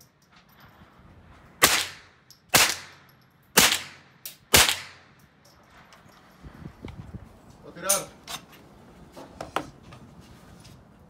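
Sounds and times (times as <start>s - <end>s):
rifle shots: 1.6s - 3.0s, 3.6s - 5.1s.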